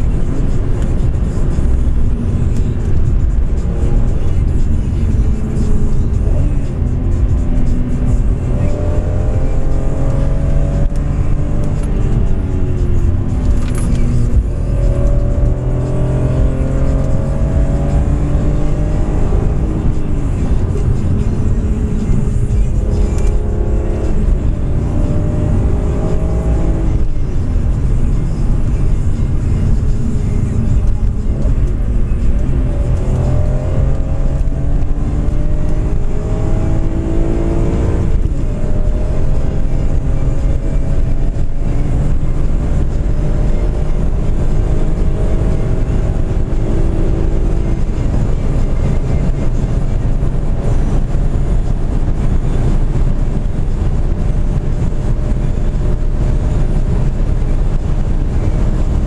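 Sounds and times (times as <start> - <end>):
car engine accelerating: 0.0 - 59.0
road and tyre noise: 0.0 - 59.0.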